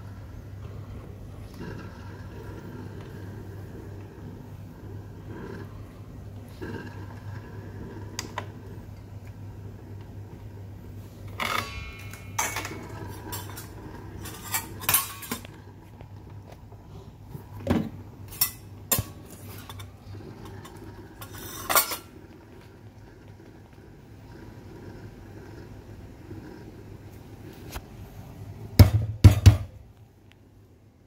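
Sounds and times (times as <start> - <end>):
steady low hum: 0.0 - 31.0
steel kitchenware clinking: 11.4 - 15.5, 18.3 - 22.1.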